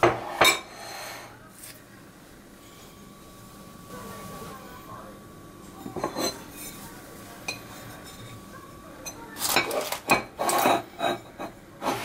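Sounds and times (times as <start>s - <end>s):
ceramic plate clinking on a bowl: 5.8s - 6.8s, 9.0s - 12.0s.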